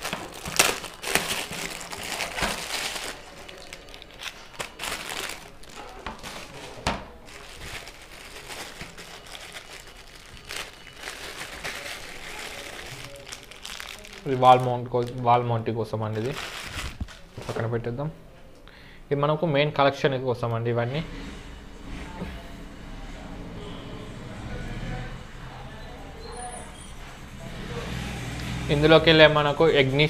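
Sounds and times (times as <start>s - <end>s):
plastic wrapping crinkling: 0.0s - 15.4s, 16.0s - 17.7s
plastic bags crackling: 0.0s - 17.7s.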